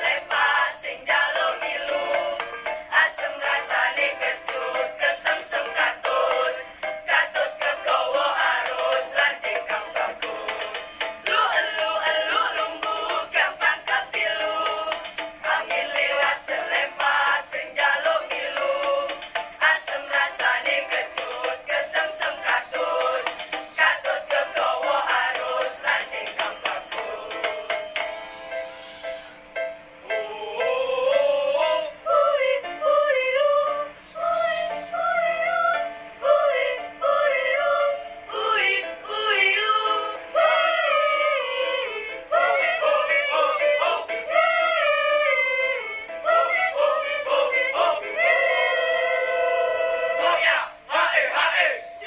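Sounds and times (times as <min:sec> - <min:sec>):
choir singing: 0:00.0 - 0:27.7, 0:30.1 - 0:52.0
quick percussive beat: 0:04.4 - 0:28.2.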